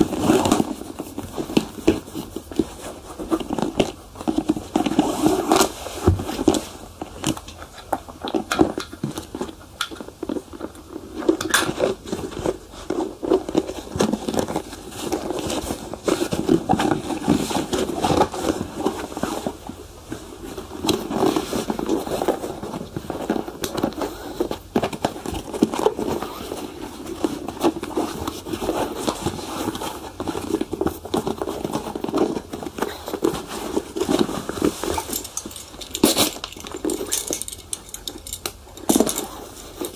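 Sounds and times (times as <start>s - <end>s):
small clicks and crackles: 20.4s - 39.9s.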